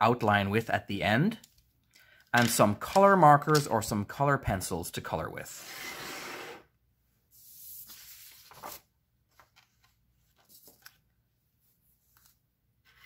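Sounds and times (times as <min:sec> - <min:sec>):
paper sliding across desk: 0:05.6 - 0:06.7, 0:07.3 - 0:08.8.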